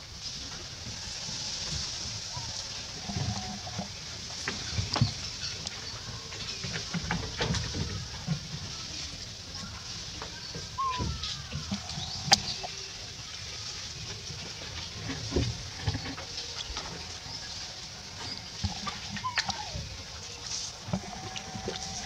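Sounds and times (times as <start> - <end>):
birds chirping: 2.3 - 8.0, 9.1 - 13.5, 15.3 - 22.0.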